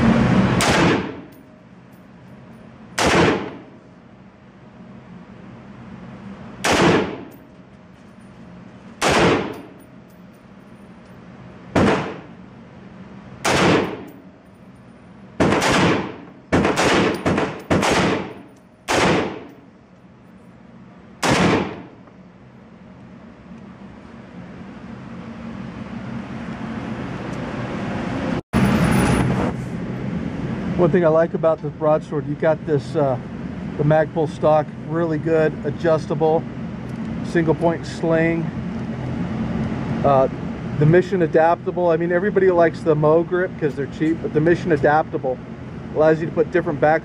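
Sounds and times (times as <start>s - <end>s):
rifle shots echoing indoors: 0.6s - 1.3s, 3.0s - 3.6s, 6.6s - 7.3s, 9.0s - 9.6s, 11.8s - 12.3s, 13.4s - 14.1s, 15.4s - 19.6s, 21.2s - 21.9s.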